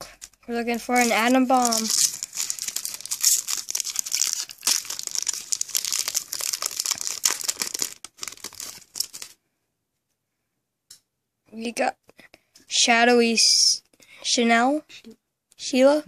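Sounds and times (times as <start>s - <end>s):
foil wrapper tearing and crinkling: 0.8s - 9.4s.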